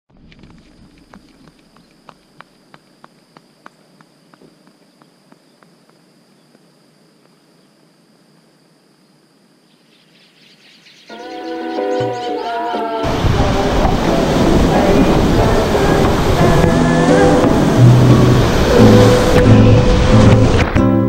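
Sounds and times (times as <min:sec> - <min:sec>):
running footsteps on asphalt: 0:00.1 - 0:07.6
faint high-pitched hiss: 0:00.3 - 0:20.6.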